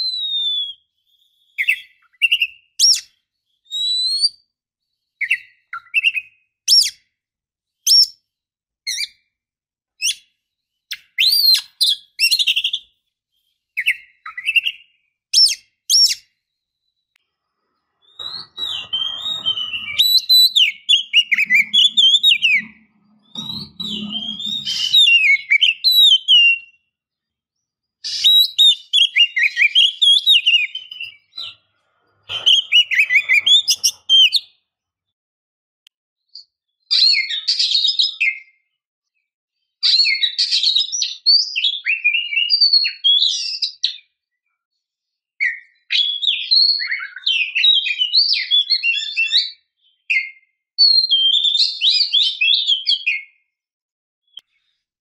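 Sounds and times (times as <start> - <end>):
bird singing: 0.0 - 7.0, 10.0 - 34.7.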